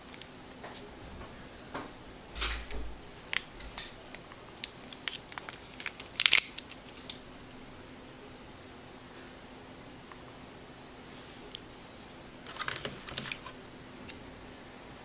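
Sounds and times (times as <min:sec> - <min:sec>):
cable and paper rustling: 0:02.4 - 0:07.2, 0:12.4 - 0:14.2.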